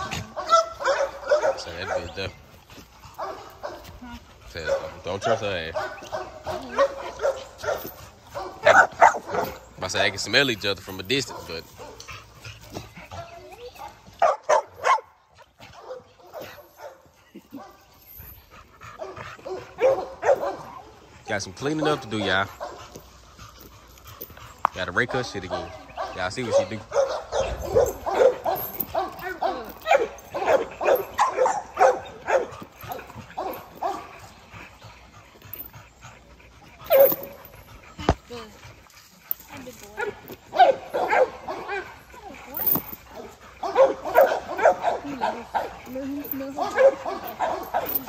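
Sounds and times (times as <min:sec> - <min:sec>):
dog barking: 0:00.0 - 0:02.2, 0:03.2 - 0:03.9, 0:04.6 - 0:09.6, 0:14.2 - 0:15.1, 0:15.8 - 0:17.7, 0:19.0 - 0:20.9, 0:25.4 - 0:34.1, 0:40.0 - 0:41.8, 0:43.6 - 0:45.8, 0:46.6 - 0:48.0.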